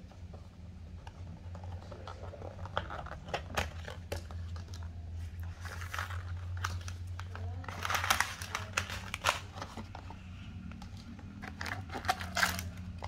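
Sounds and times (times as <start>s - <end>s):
plastic lid clicking and crackling: 1.5s - 4.8s.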